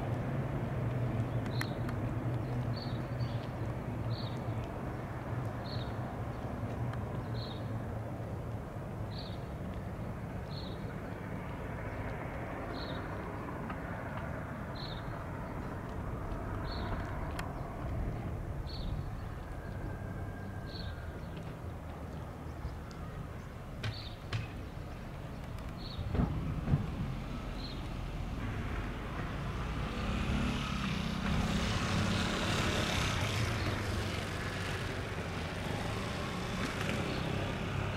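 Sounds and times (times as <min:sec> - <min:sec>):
distant turboprop drone: 0:09.7 - 0:37.9.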